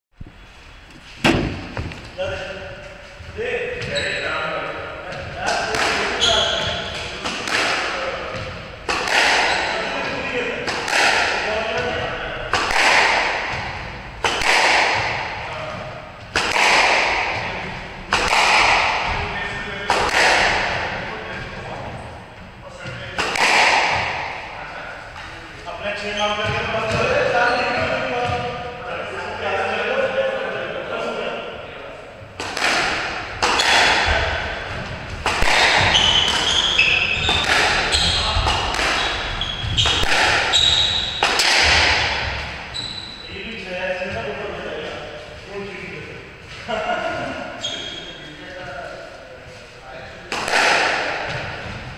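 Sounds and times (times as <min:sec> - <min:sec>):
shoes squeaking on wooden floor: 0:00.2 - 0:04.4, 0:06.1 - 0:07.0, 0:34.6 - 0:41.3, 0:42.2 - 0:44.3
squash ball hits echoing: 0:01.2 - 0:02.1, 0:05.1 - 0:21.2, 0:22.8 - 0:24.6, 0:32.3 - 0:42.8, 0:50.2 - 0:51.9.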